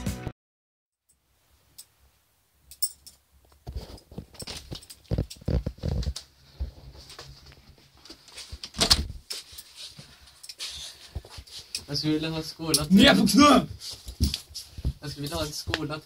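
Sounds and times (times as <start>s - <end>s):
knocks and thumps of people moving: 13.0s - 16.0s.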